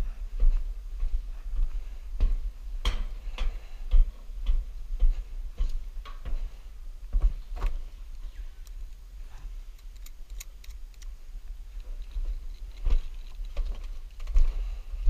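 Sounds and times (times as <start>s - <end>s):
steady low rumble: 0.0s - 15.0s
footsteps on wooden planks: 0.4s - 8.4s, 12.2s - 14.9s.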